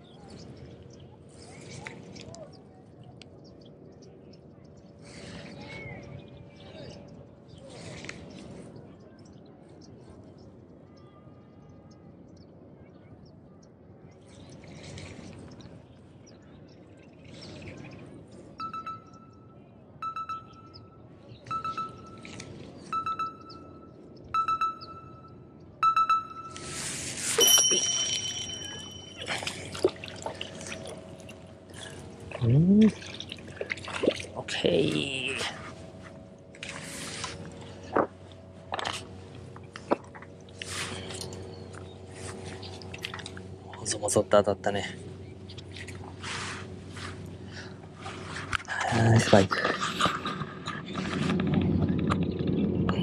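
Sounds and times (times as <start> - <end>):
electronic jingle of short beeps: 18.6 - 19.3, 20.0 - 22.3, 22.9 - 29.6
faint bird chirps: 18.6 - 29.9.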